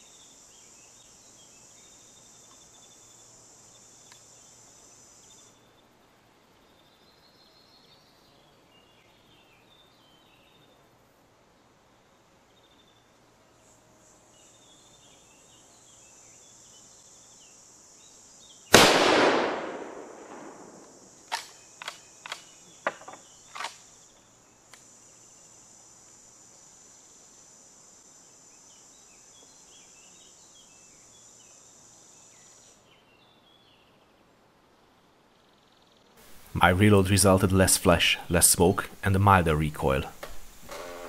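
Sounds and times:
rifle shot with echo: 18.7s - 21.0s.

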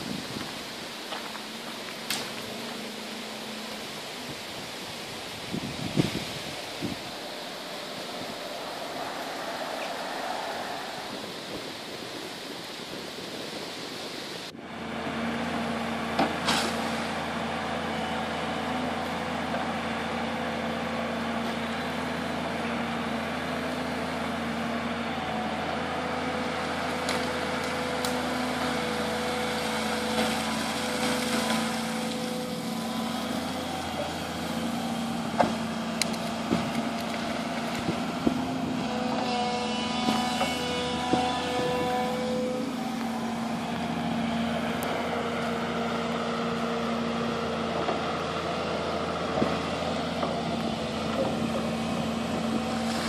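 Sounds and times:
excavator diesel engine humming: 0.0s - 53.0s
even rushing noise: 2.3s - 14.6s.

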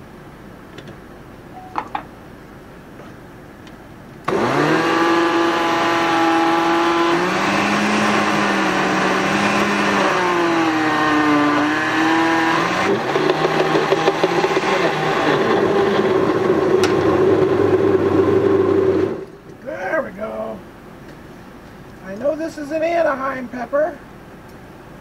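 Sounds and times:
blender motor running: 4.3s - 19.2s.

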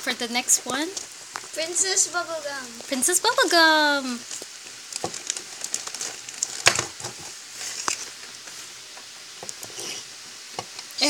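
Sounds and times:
plastic bag crinkling: 0.1s - 8.8s.

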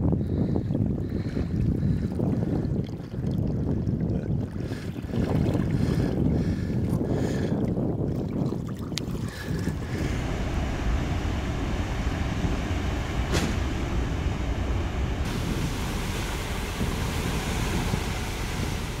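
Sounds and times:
wind buffeting microphone: 0.0s - 19.0s
wake churning: 8.0s - 19.0s
ferry engine rumble: 9.6s - 19.0s.

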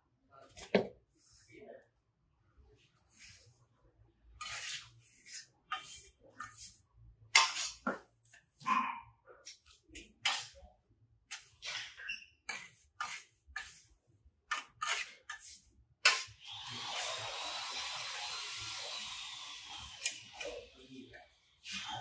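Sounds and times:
trowel scraping cement: 4.4s - 8.1s, 9.5s - 10.6s, 11.3s - 13.9s, 14.5s - 22.0s.

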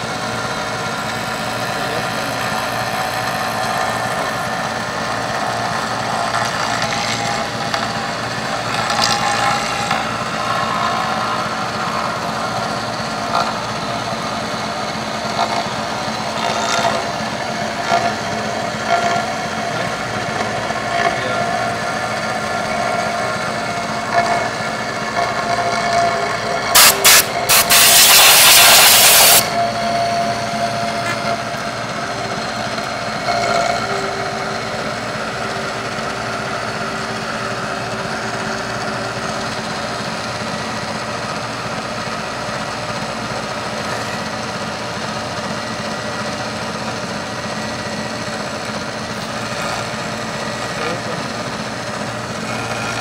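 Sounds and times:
milling machine whine: 0.0s - 53.0s
short bursts: 26.7s - 29.5s
loud hiss: 26.8s - 29.5s.

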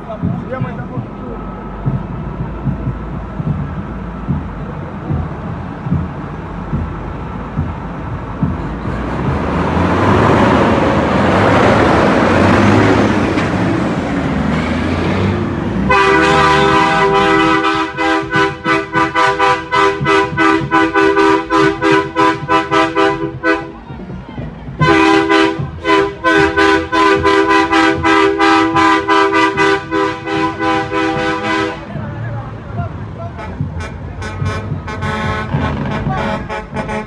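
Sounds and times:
loud rushing noise: 0.0s - 37.0s
truck engine rumble: 0.0s - 37.0s
truck air horn blasts: 15.8s - 23.8s, 24.8s - 32.0s, 33.3s - 37.0s.

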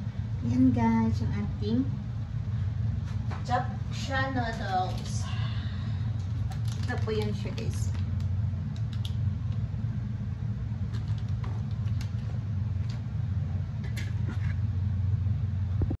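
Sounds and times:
steady low rumble: 0.0s - 16.0s
faint clicks and rustles: 4.4s - 5.4s, 6.1s - 9.7s, 10.8s - 13.1s.

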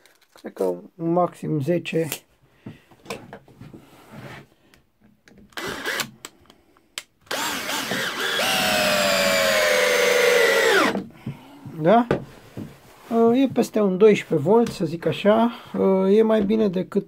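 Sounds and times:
cordless drill motor whining: 5.5s - 6.1s, 7.3s - 11.0s.

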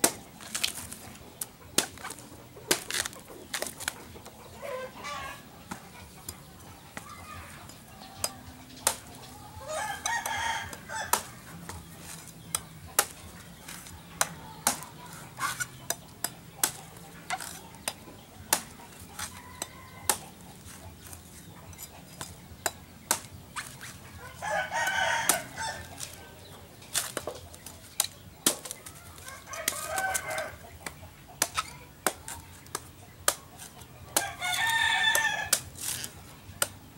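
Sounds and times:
machete chopping coconut husk: 0.0s - 4.8s, 5.6s - 36.9s
rooster crowing: 9.5s - 11.3s, 24.2s - 26.0s, 29.1s - 30.6s.

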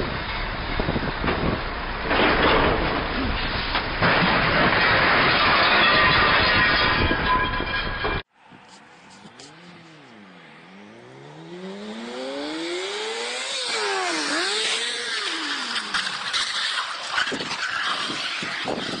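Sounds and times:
motorcycle engine revving: 9.1s - 17.1s.

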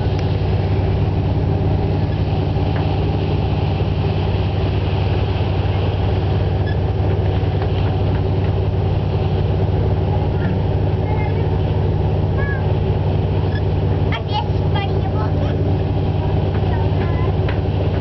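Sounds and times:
ferry engines droning: 0.0s - 18.0s.

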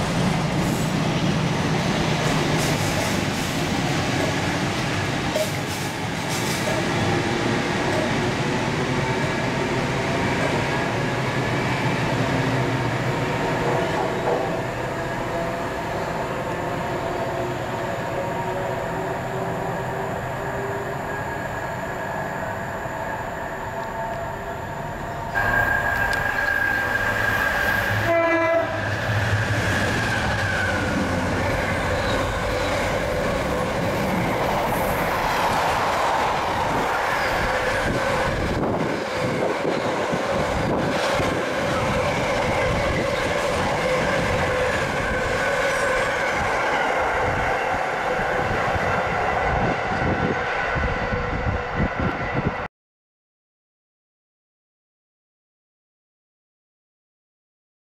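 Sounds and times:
train passing: 0.0s - 52.7s
train horn: 25.4s - 29.5s.

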